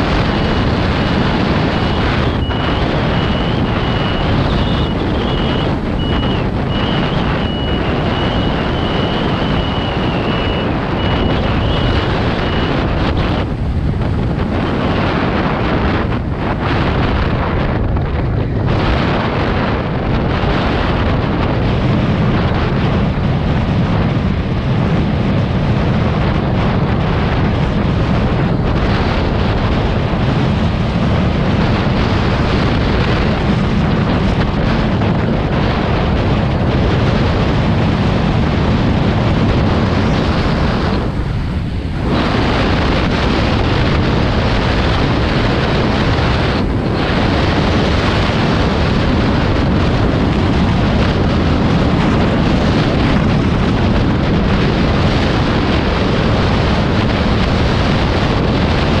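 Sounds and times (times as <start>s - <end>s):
wind roaring over microphone: 0.0s - 59.0s
rapid high beeping: 1.8s - 12.9s.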